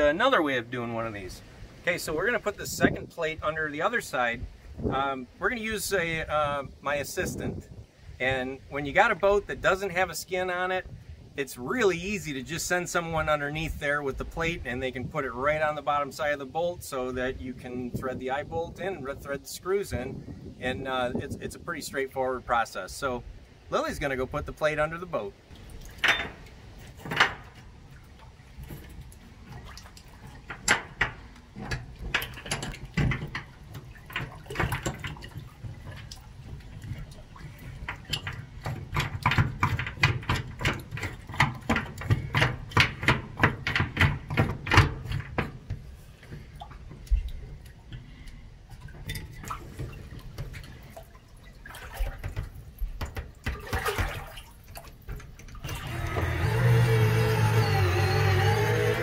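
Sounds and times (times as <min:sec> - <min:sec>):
water sloshing and splashing: 0:25.4 - 0:59.0.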